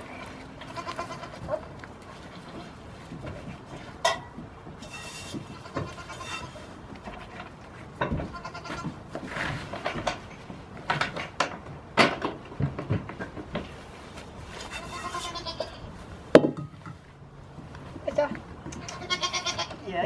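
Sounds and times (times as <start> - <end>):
young goats bleating: 0.0 - 2.8, 5.4 - 6.6, 8.2 - 9.0, 14.8 - 15.9, 18.8 - 20.0.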